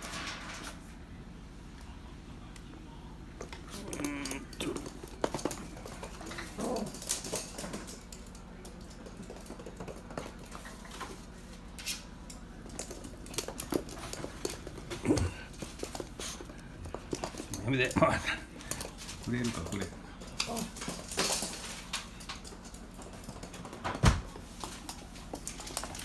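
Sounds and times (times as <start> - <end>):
dog claws clicking on hard floor: 3.4 - 11.2, 11.8 - 26.0
dog grunts and whines: 3.7 - 5.0, 15.0 - 15.5.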